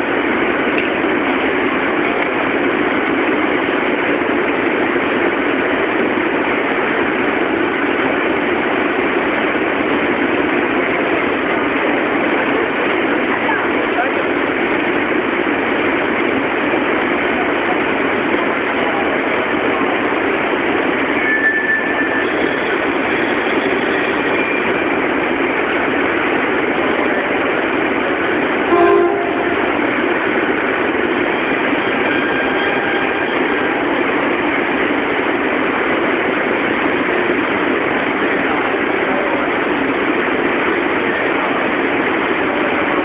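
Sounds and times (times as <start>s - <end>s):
train running slowly: 0.0s - 43.0s
short tone: 21.2s - 24.8s, 28.7s - 29.8s, 32.0s - 33.4s.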